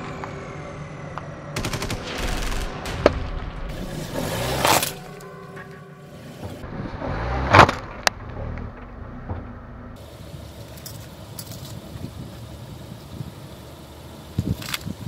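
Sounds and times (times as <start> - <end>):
low car rumble: 0.0 - 15.0.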